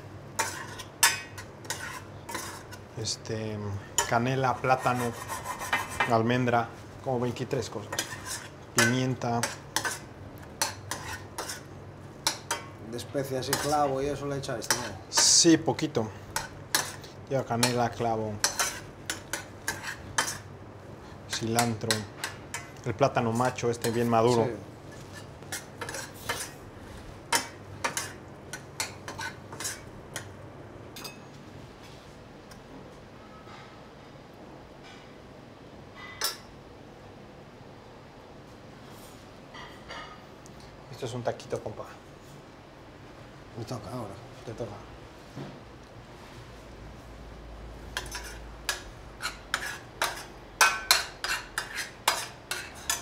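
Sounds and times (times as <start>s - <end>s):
spoon clinking and scraping a pan: 0.4s - 2.8s, 7.9s - 12.7s, 18.4s - 20.4s, 23.8s - 26.6s, 27.3s - 30.3s, 48.0s - 53.0s
utensils scraping and clinking: 0.4s - 2.8s, 21.3s - 26.6s, 48.0s - 53.0s.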